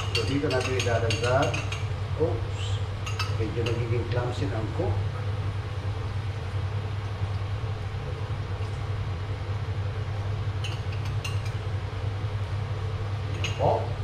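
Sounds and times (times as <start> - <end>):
cup clinking against wok: 0.0 - 1.8, 3.1 - 3.8, 13.4 - 13.7.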